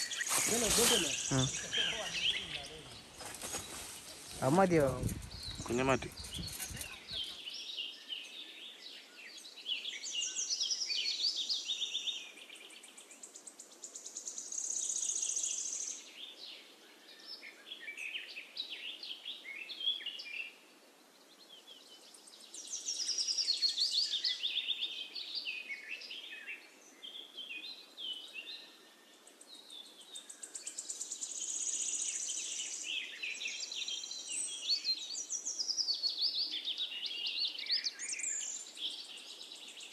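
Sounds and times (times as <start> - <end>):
birds chirping and singing: 0.0 - 13.6, 22.4 - 39.9.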